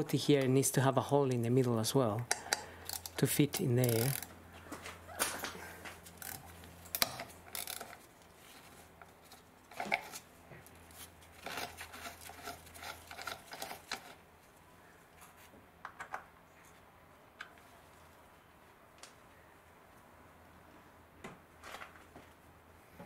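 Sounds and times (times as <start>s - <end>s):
screwdriver clicking and scraping: 2.3s - 4.3s.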